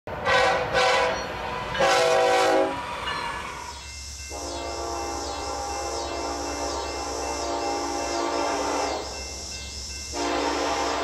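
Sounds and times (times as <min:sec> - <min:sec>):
locomotive horn blast: 0:00.1 - 0:03.0, 0:04.3 - 0:09.1, 0:10.1 - 0:11.0
train rumble: 0:00.1 - 0:11.0
pulsing high hiss: 0:01.3 - 0:11.0.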